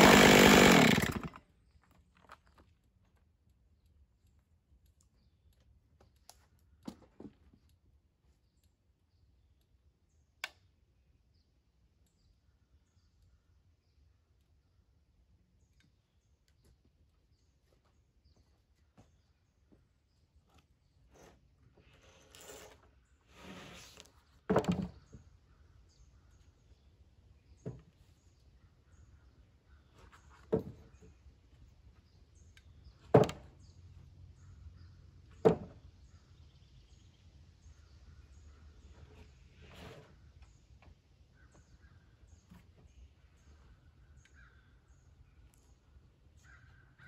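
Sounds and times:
wood sliding on wood: 0:21.1 - 0:24.9, 0:39.0 - 0:40.2.

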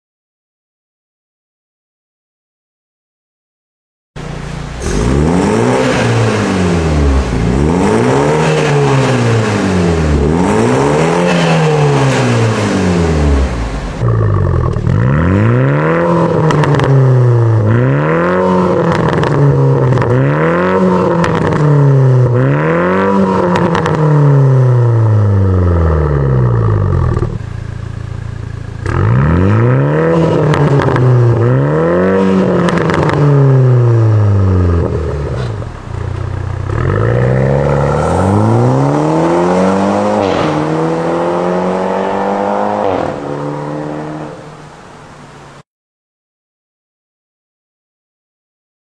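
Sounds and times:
car engine idling: 0:04.2 - 0:15.1, 0:24.9 - 0:31.5, 0:33.7 - 0:41.1
car engine revving: 0:04.2 - 0:45.6.

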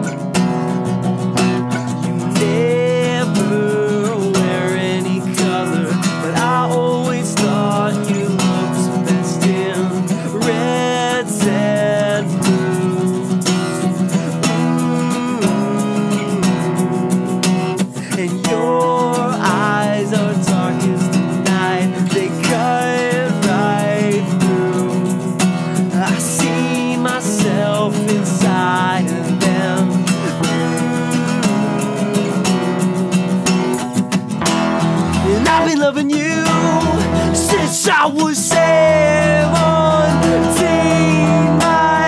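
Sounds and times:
acoustic guitar strumming: 0:00.0 - 0:42.0.

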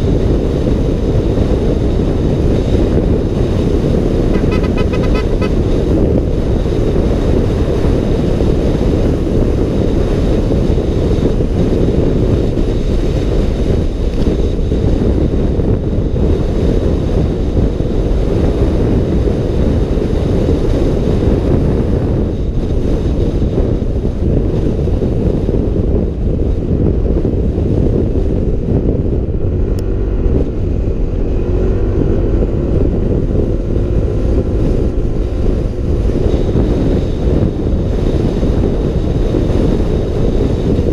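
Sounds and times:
road noise: 0:00.0 - 0:40.9
wind rush on microphone: 0:00.0 - 0:40.9
scooter engine: 0:04.3 - 0:05.9.

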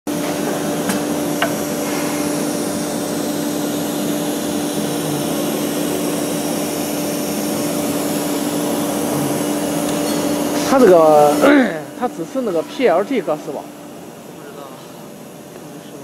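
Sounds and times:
router spindle whine: 0:00.4 - 0:13.0
hiss: 0:01.4 - 0:10.1.

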